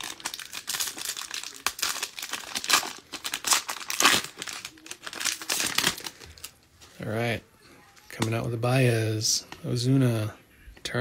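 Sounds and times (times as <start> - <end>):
foil wrapper tearing and crinkling: 0.0 - 6.5.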